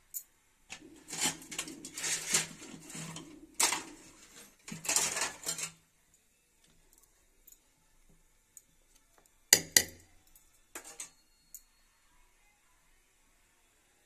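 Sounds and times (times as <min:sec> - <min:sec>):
spoon scraping cookware: 0:00.7 - 0:05.8, 0:10.7 - 0:11.2
spoon clink on metal: 0:10.2 - 0:11.8.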